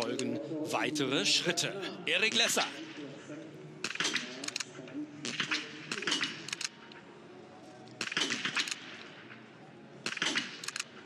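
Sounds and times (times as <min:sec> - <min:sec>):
rifle bolt clicks: 0:03.8 - 0:04.7, 0:05.3 - 0:07.0, 0:07.8 - 0:09.1, 0:10.0 - 0:11.0
rifle shots cracking: 0:03.8 - 0:06.8, 0:08.0 - 0:09.4, 0:10.0 - 0:11.0.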